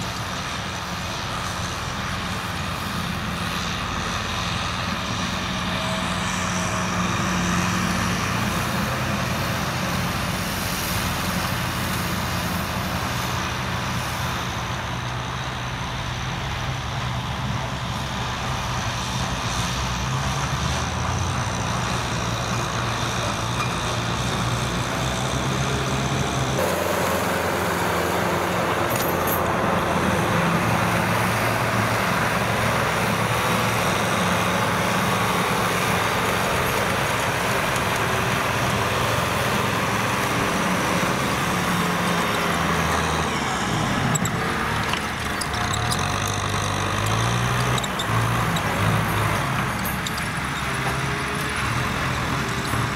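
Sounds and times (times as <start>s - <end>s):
tractor diesel engine running: 0.0s - 52.9s
rotary tiller churning soil: 21.7s - 52.9s.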